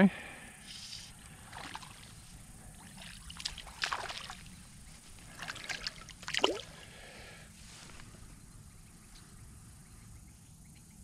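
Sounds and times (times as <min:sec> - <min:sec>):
fish splashing at water surface: 0:01.3 - 0:06.8.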